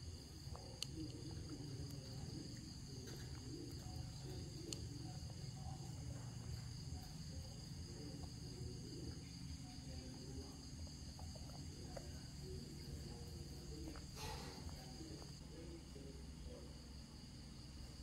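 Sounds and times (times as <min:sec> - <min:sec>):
high-pitched insect chorus: 0:00.0 - 0:18.0
faint clicks: 0:00.5 - 0:05.2.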